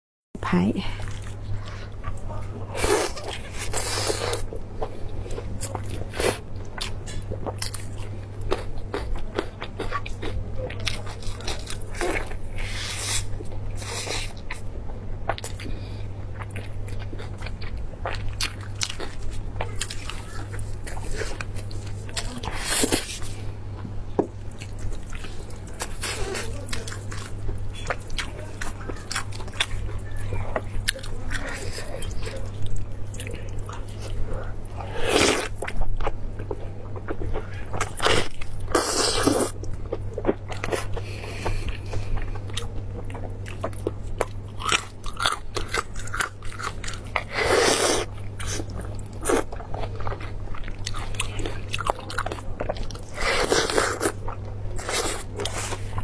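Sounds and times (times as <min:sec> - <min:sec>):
steady low hum: 0:00.4 - 0:56.0
chewing and biting meat: 0:15.3 - 0:23.4, 0:24.4 - 0:56.0.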